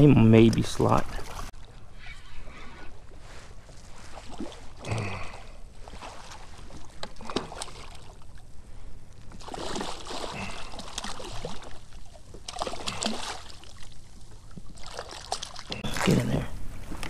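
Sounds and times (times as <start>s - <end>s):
fish thrashing and splashing: 9.3s - 16.4s.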